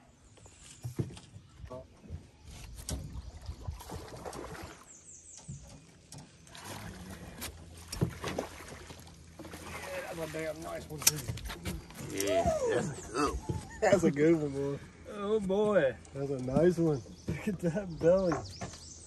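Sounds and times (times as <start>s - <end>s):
water sloshing: 2.6s - 18.5s
knocks against a boat: 16.5s - 18.9s.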